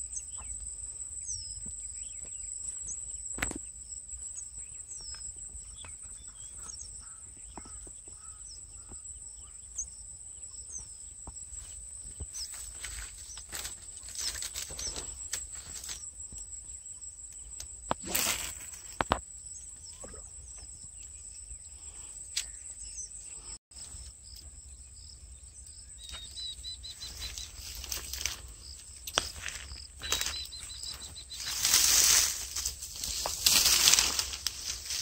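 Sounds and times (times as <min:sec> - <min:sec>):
high-pitched insect drone: 0:26.2 - 0:35.0
loud rustles: 0:30.9 - 0:35.0.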